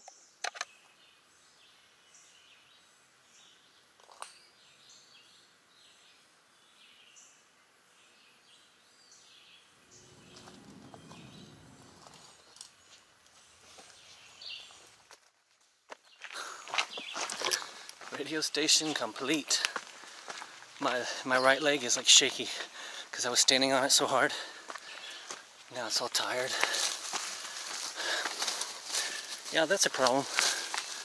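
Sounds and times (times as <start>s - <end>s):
bird chirps: 9.0s - 14.9s
low rumble: 9.8s - 13.7s.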